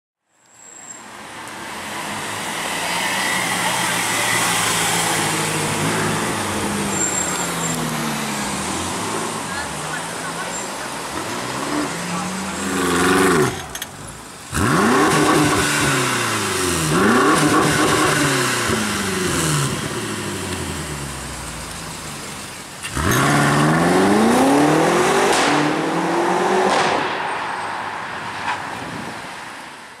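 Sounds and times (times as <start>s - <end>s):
car engine revving and accelerating: 1.9s - 13.8s, 14.5s - 27.2s.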